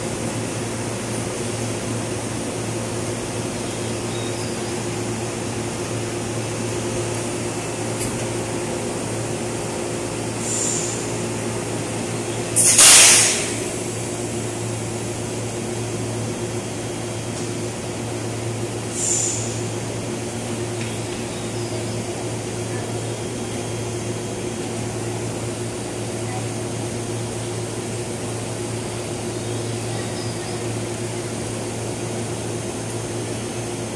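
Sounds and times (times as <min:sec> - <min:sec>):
train equipment humming: 0:00.0 - 0:33.9
air hissing: 0:10.3 - 0:11.1, 0:12.6 - 0:13.7, 0:18.9 - 0:19.7.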